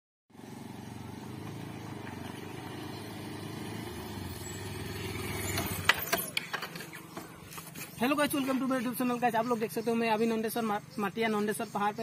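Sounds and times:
motorcycle engine running: 0.3s - 9.4s.

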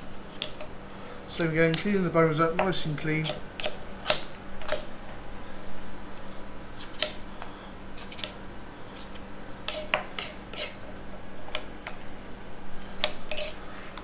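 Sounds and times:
knife scraping bones: 9.0s - 10.9s, 13.0s - 14.0s.

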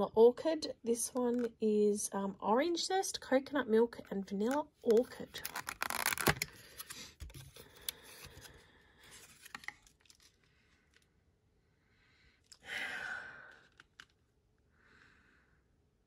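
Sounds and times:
plastic film crinkling: 4.9s - 11.0s.

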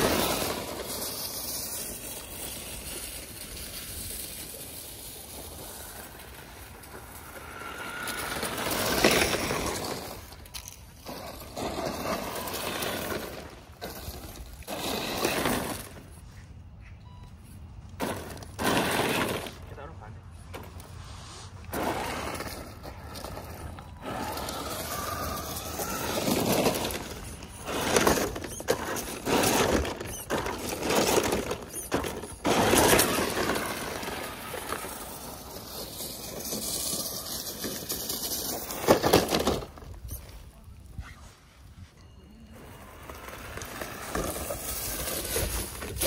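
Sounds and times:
toy car motor running: 21.8s - 40.2s.

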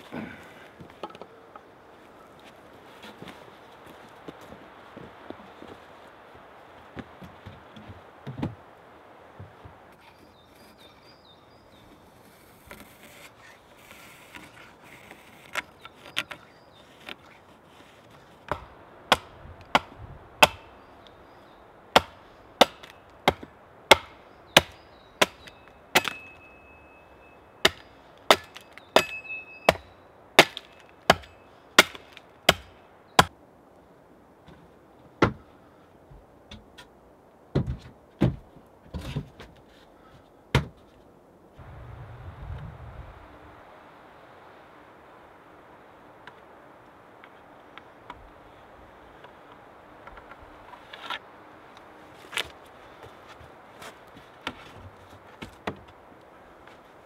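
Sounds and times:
axe chopping wood: 18.5s - 20.7s, 21.9s - 26.4s, 27.6s - 33.3s, 35.2s - 35.4s, 40.5s - 40.8s.

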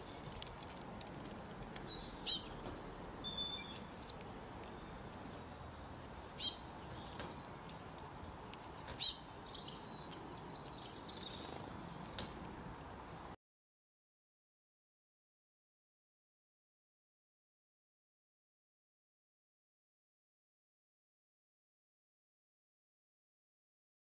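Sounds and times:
faint bird twittering: 1.8s - 7.5s, 8.6s - 13.0s.

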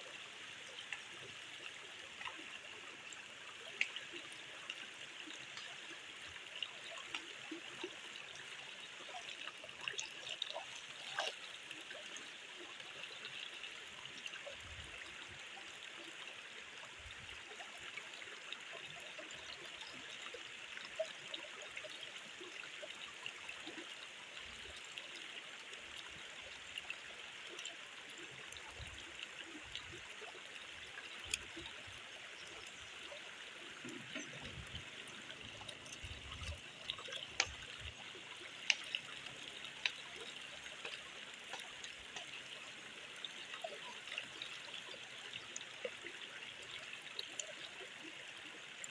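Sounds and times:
stream trickling over rock: 0.0s - 48.9s
light clicks and taps: 35.5s - 42.4s.

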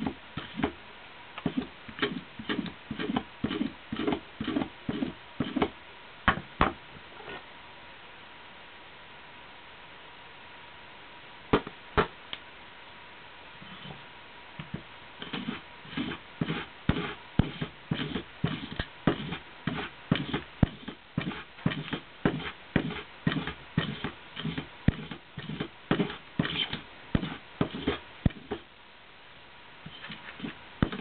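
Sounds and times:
hand tool scraping and clicking: 29.9s - 31.0s.

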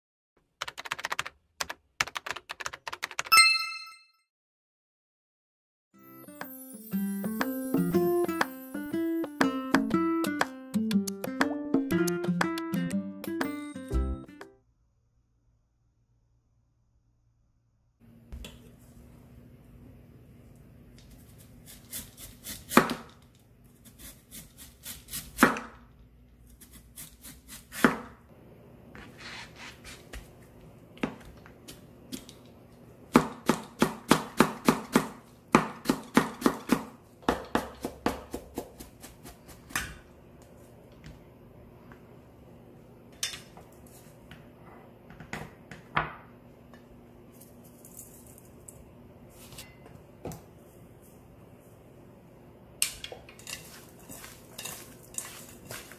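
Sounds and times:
knife cutting radish on a board: 21.1s - 23.2s, 23.8s - 25.8s, 26.5s - 28.2s, 33.1s - 39.8s.

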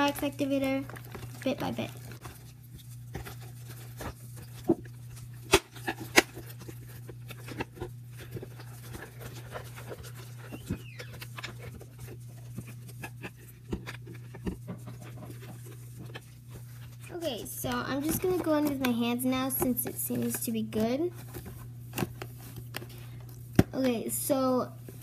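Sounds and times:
steady low hum: 0.0s - 25.0s
wet slime squelches: 0.0s - 25.0s.

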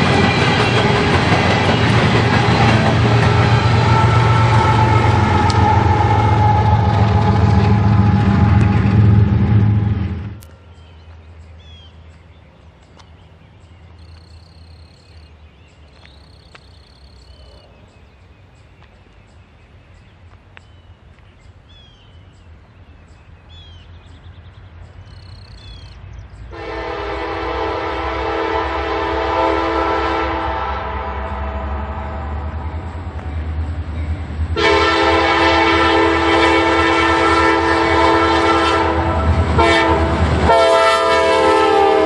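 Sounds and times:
locomotive air horn blast: 0.0s - 10.4s, 26.5s - 32.4s, 34.6s - 42.0s
locomotive low rumble: 0.0s - 42.0s.

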